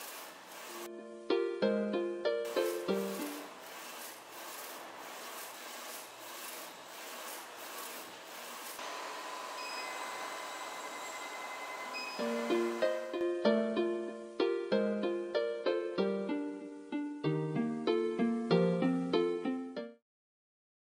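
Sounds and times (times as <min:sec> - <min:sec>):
machine hiss with high whine: 0:00.0 - 0:00.9, 0:02.5 - 0:13.2
printer carriage swishing: 0:00.0 - 0:00.9, 0:02.5 - 0:08.9.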